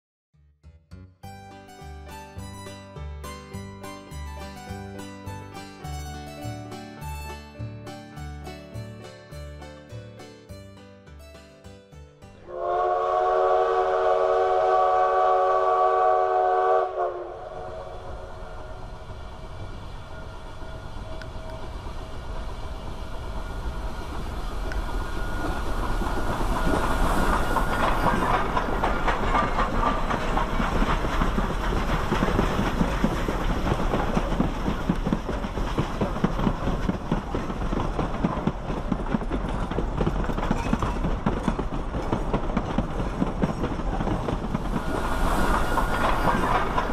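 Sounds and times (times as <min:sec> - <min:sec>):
steam whistle chord: 0:12.3 - 0:30.0, 0:44.7 - 0:46.9
steam exhaust: 0:12.5 - 0:37.7, 0:43.9 - 0:46.9
coaches rumbling on rails: 0:12.5 - 0:46.9.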